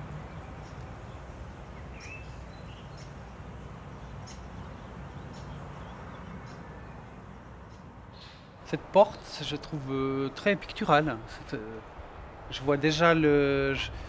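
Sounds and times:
faint bird chirps: 0.0 - 8.6
low background noise: 0.0 - 14.0.

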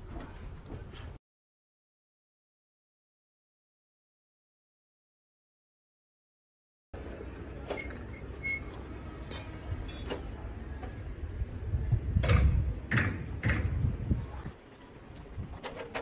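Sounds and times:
steady low rumble: 8.9 - 15.5.

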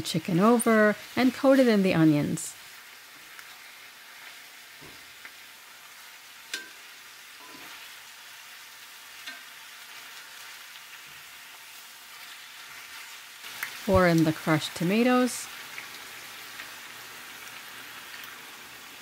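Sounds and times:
chicken sizzling in a pan: 0.0 - 19.0
metal tongs clicking and knocking: 6.5 - 6.8.

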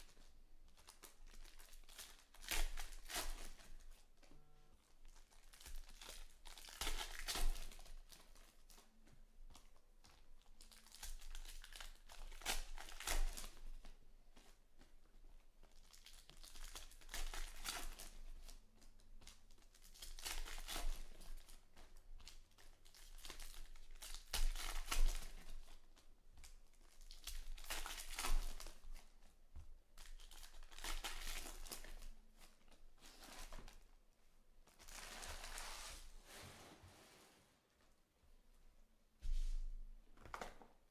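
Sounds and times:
foil wrappers crinkling and tearing: 0.1 - 4.0, 5.0 - 8.8, 10.6 - 13.9, 15.8 - 18.6, 19.2 - 21.6, 22.2 - 29.2, 30.0 - 33.8.

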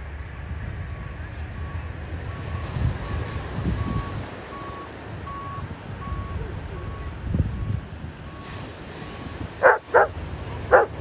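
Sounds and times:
wind: 0.0 - 11.0
faint electronic beeps: 3.8 - 7.1
dog barking: 9.6 - 11.0.

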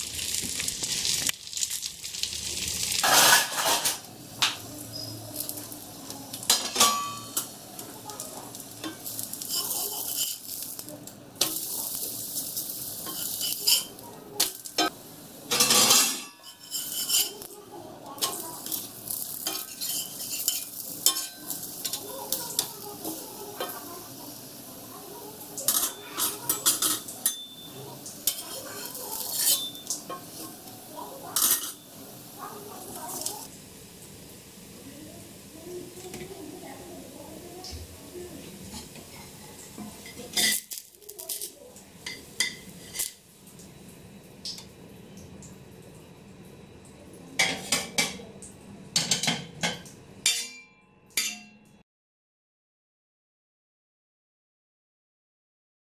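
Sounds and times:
oil sizzling: 0.0 - 50.5
metal spatula scraping griddle: 2.9 - 4.0, 8.8 - 10.6, 13.0 - 14.0, 15.5 - 17.5, 18.2 - 22.7, 28.2 - 30.5, 42.0 - 43.2
spatula clinking on griddle: 3.0 - 4.0, 6.4 - 7.5, 8.8 - 10.7, 13.0 - 14.9, 15.5 - 17.5, 18.2 - 23.9, 25.6 - 30.5, 31.3 - 32.5, 38.7 - 43.2, 49.0 - 51.7.

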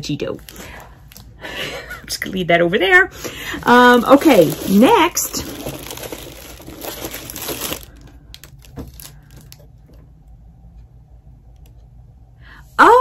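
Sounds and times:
plastic packaging crinkling: 3.2 - 9.8.

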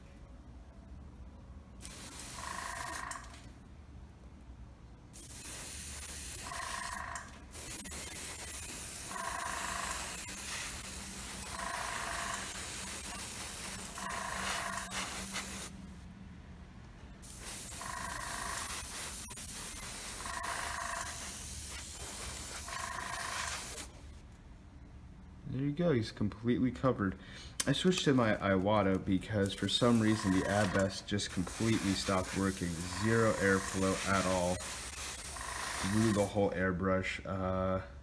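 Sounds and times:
airbrush hissing: 1.8 - 3.0, 5.2 - 15.8, 17.2 - 23.9, 29.4 - 36.3
air compressor humming: 5.2 - 16.0, 17.2 - 24.0, 29.4 - 36.4.

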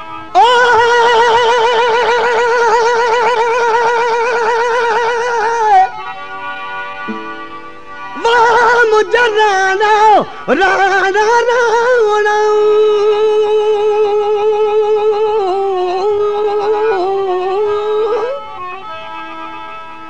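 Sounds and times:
man singing a long high note: 0.0 - 6.1, 8.2 - 18.6
instrumental accompaniment: 0.0 - 20.0.

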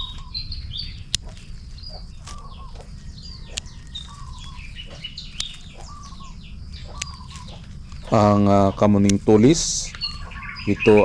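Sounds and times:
small birds chirping: 0.0 - 11.0
pruning shears snipping: 1.1 - 6.2, 6.9 - 10.1.

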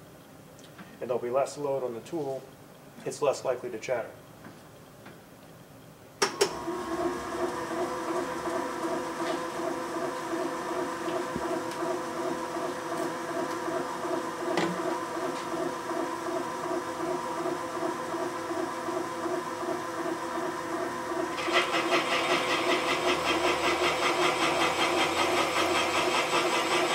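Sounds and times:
cutter machining with pulsing whir: 6.5 - 26.9.

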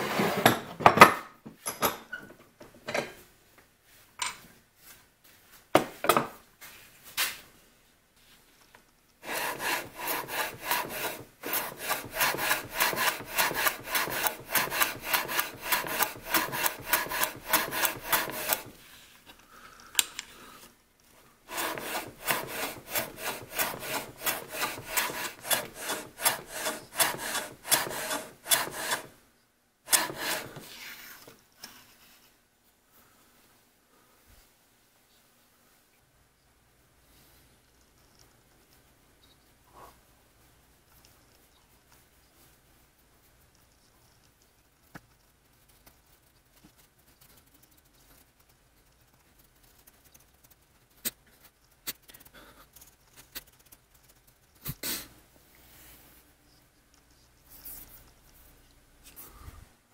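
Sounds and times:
hand plane shaving wood: 9.2 - 18.8, 21.5 - 29.2, 29.9 - 30.8.

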